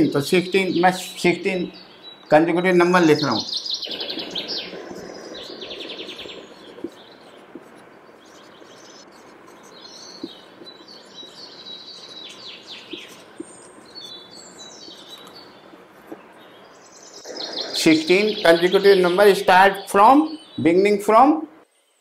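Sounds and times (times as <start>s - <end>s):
small birds chirping: 0.0s - 22.0s
marker tapping on whiteboard: 4.9s - 11.0s, 12.0s - 14.1s, 14.8s - 16.3s.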